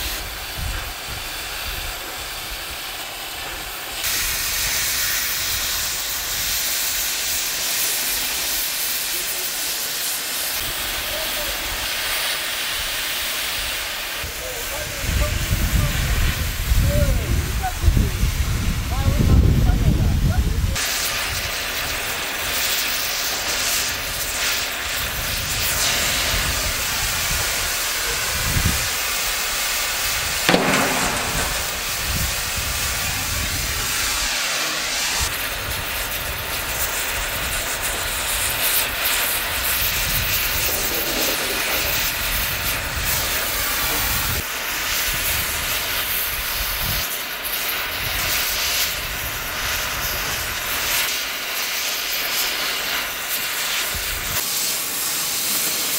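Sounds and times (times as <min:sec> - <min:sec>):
cutting torch hissing: 0:00.0 - 0:55.9
sharp knock: 0:30.5 - 0:32.4.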